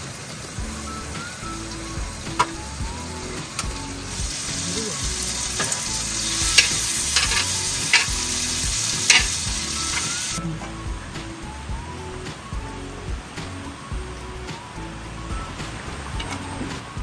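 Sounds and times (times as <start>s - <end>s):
chicken sizzling in pan: 0.0s - 10.4s
faint background music: 0.0s - 17.0s.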